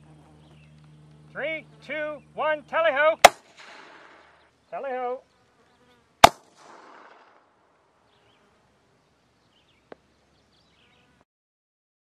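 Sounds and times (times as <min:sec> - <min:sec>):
rifle shot echo: 0:03.2 - 0:04.4, 0:06.2 - 0:07.6.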